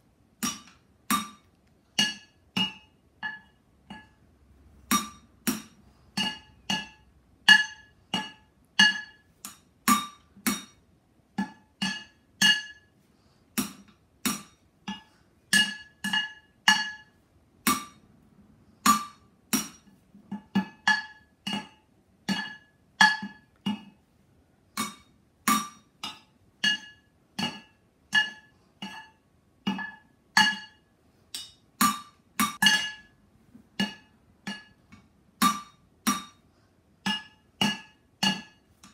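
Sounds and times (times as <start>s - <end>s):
drumsticks beating metal pots: 0.4s - 18.2s, 18.8s - 24.0s, 24.7s - 38.9s.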